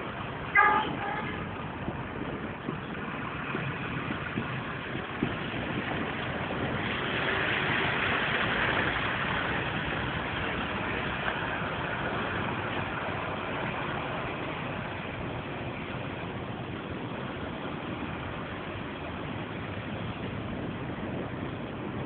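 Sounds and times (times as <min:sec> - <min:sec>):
engine rumble: 0:00.0 - 0:22.0.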